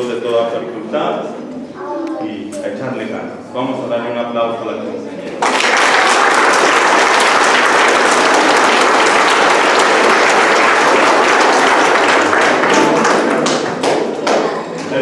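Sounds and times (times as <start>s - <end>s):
crowd applauding: 5.4s - 14.9s.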